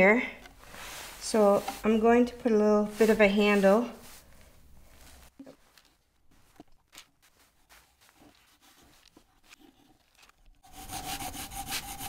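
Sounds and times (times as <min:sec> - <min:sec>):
pencil scratching on wood: 0:08.2 - 0:12.0.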